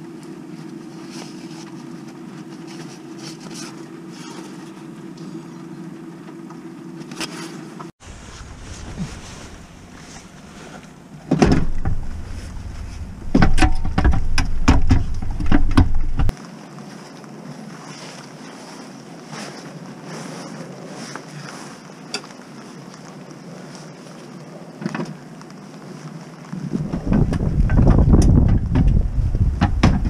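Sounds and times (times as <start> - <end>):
microphone handling noise: 8.0 - 16.3, 26.6 - 30.0
wind rumbling on microphone: 8.0 - 22.0, 22.6 - 30.0
irregular knocks and rustles: 8.2 - 16.3, 24.8 - 30.0.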